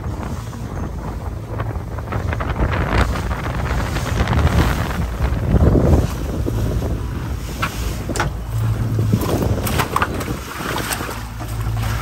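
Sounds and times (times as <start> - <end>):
outboard motor running: 0.0 - 12.0
water rushing in wake: 0.0 - 12.0
wind on microphone: 0.0 - 12.0.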